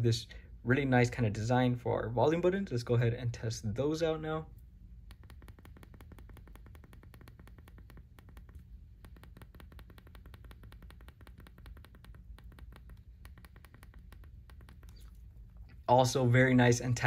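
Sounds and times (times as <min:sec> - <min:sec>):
low steady hum: 0:00.0 - 0:17.0
phone buttons clicking: 0:05.1 - 0:15.1.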